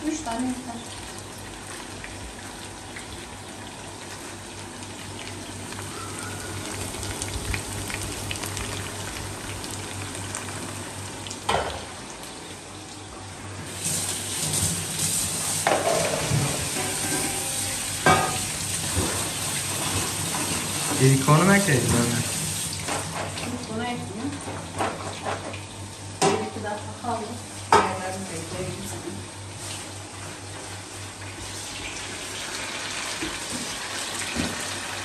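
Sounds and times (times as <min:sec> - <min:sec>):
pan sizzling: 0:13.6 - 0:24.2
kitchen tap running: 0:13.7 - 0:26.7.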